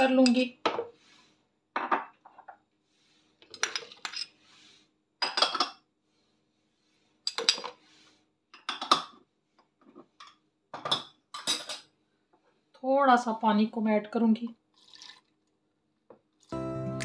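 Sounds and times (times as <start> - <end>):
spoon and ceramic dishes clinking: 5.2 - 5.8, 10.8 - 11.9.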